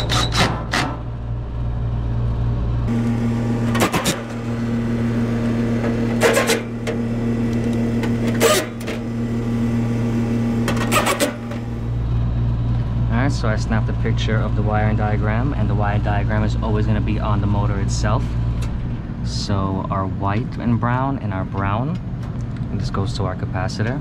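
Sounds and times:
screws driven home: 5.8 - 7.0, 8.0 - 9.0, 10.6 - 11.7.

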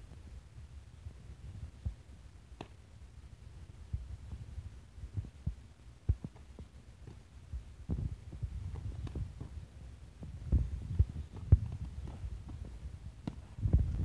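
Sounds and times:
gloved punches thudding: 2.6 - 2.8, 10.9 - 13.9
footwork on grass: 3.9 - 14.0.

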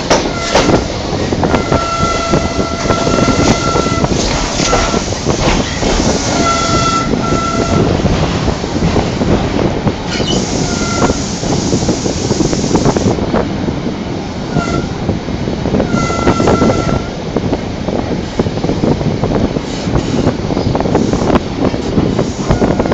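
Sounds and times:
train wheels rumbling on rail: 0.0 - 22.9
wheel squeals: 1.6 - 7.9.

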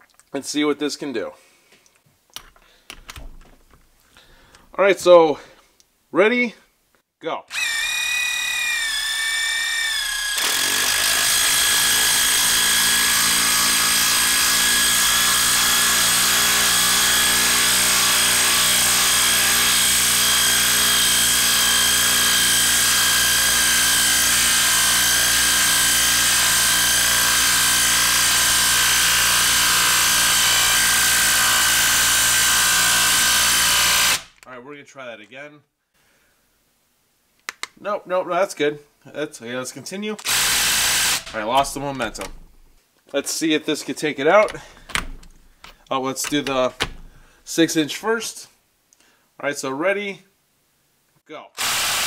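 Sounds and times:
impact wrench hammering whine: 7.5 - 34.4, 40.2 - 42.8.

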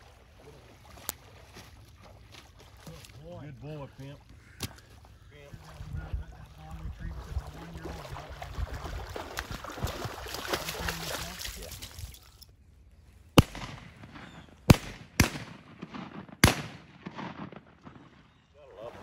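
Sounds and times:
dog splashing through water: 0.0 - 3.2, 4.9 - 12.4
shotgun shots with echo: 13.4 - 18.4.

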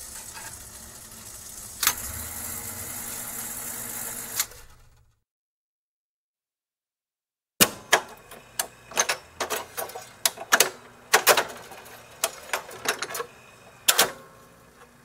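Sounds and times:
jukebox mechanism clicks and clunks: 1.8 - 2.2, 4.2 - 5.1, 7.6 - 15.0.

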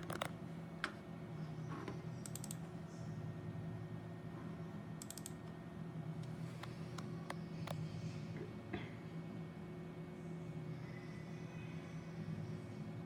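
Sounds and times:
steady low hum: 0.0 - 13.0
computer mouse clicking: 2.2 - 2.6, 5.0 - 5.5.

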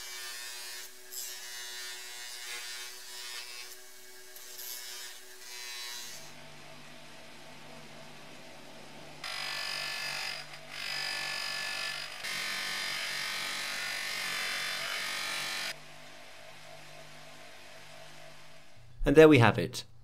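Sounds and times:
bench polisher motor running: 9.2 - 15.8.

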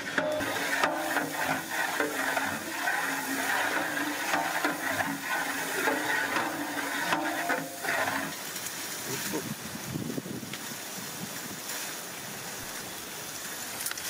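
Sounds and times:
ladle knocking and scraping pot: 0.0 - 8.5
vegetables sizzling in oil: 0.0 - 13.8.

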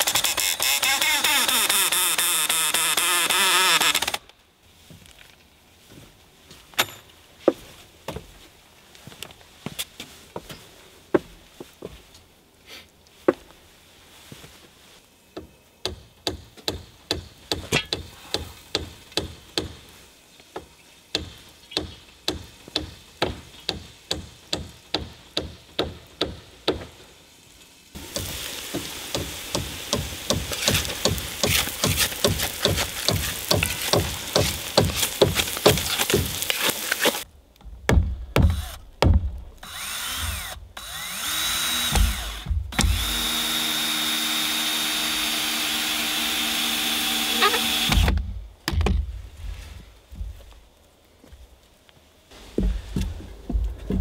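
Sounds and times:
tool working wood in strokes: 28.0 - 37.3, 39.6 - 48.2
power drill running in spurts: 39.7 - 48.1.

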